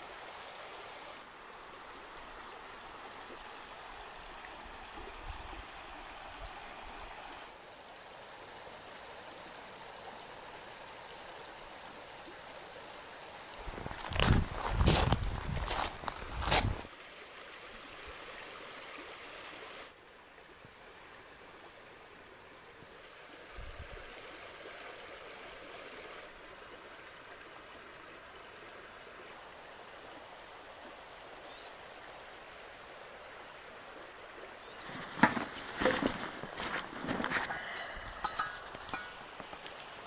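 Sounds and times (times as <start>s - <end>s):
stream flowing: 0.0s - 40.0s
footsteps on gravel: 13.6s - 16.9s, 34.8s - 39.8s.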